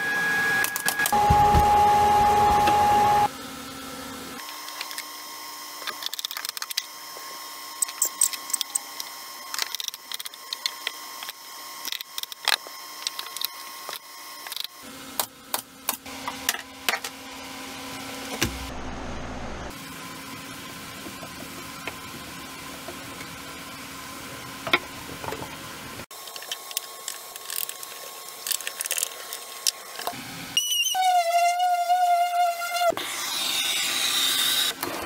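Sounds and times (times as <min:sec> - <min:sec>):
machine whine: 0:00.0 - 0:03.3.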